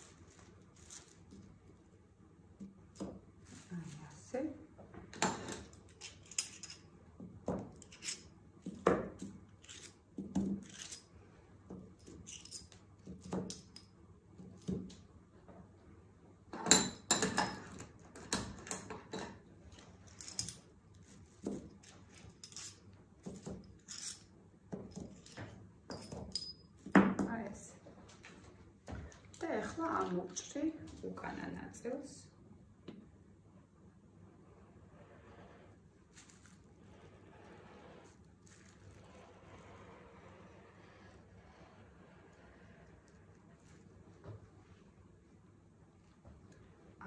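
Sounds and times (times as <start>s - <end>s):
pins clicking and clinking: 5.2s - 6.9s, 7.7s - 11.1s, 11.9s - 14.0s, 16.6s - 26.9s.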